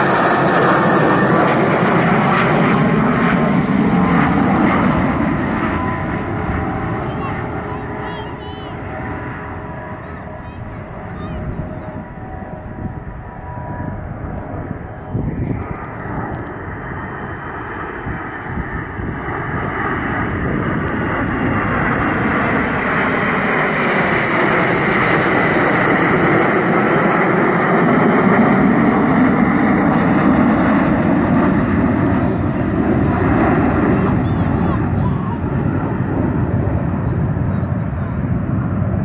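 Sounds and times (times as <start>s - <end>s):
jet engines roaring overhead: 0.0s - 39.0s.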